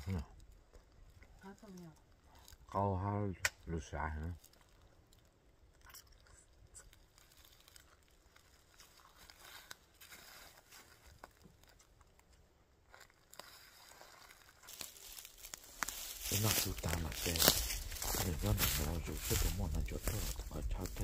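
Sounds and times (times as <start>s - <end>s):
faint rustling: 6.4s - 21.0s.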